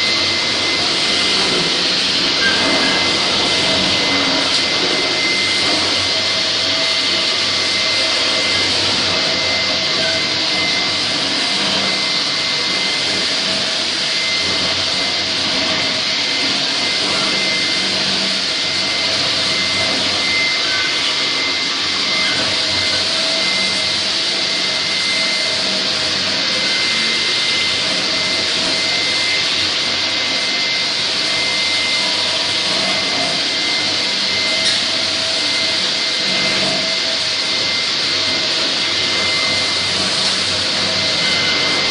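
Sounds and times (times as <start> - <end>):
dust collector vacuum: 0.0 - 41.9
floor grinder grinding concrete: 0.0 - 41.9
high whine: 0.0 - 41.9.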